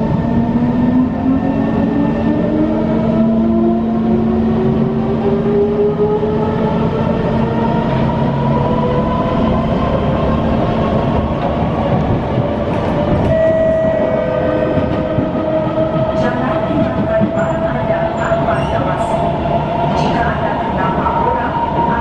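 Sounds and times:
steady high tone: 0:13.2 - 0:15.7.

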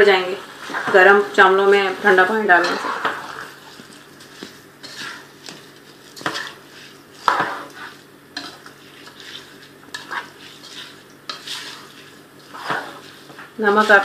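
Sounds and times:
faint frying sizzle: 0:00.0 - 0:14.0
spoon scraping a pot: 0:02.6 - 0:03.8, 0:04.8 - 0:14.0.

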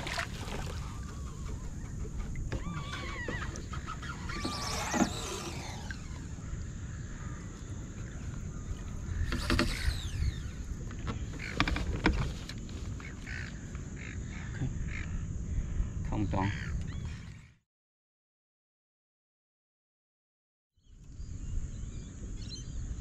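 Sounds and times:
paddle knocking against plastic kayak: 0:00.0 - 0:03.7
wind rumbling on microphone: 0:00.0 - 0:17.5, 0:20.9 - 0:23.0.

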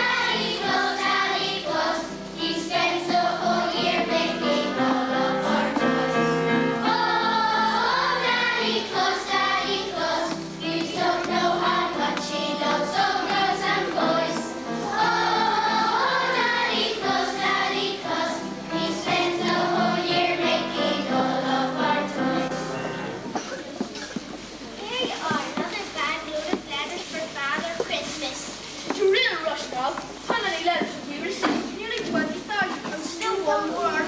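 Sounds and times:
children singing together: 0:00.0 - 0:23.2
musical accompaniment: 0:00.0 - 0:24.8.

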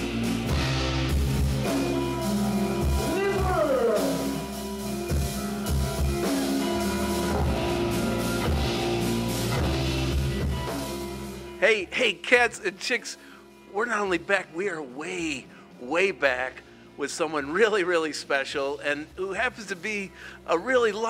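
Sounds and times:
rock band playing live: 0:00.0 - 0:12.6
sliding guitar note: 0:01.6 - 0:11.0.

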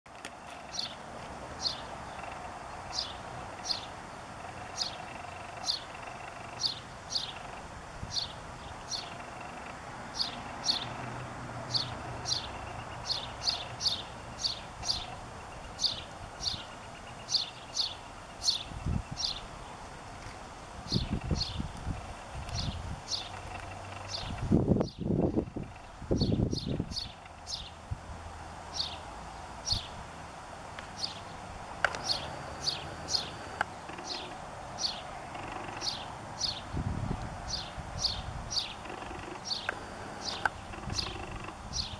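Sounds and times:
sparrow cheeping: 0:04.5 - 0:09.6, 0:31.9 - 0:36.8, 0:37.5 - 0:41.9.

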